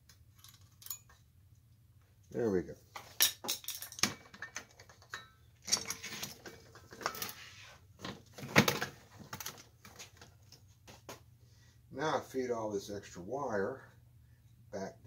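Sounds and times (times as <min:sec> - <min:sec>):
hands handling metal lamp arm: 0:00.1 - 0:01.2, 0:02.9 - 0:10.7.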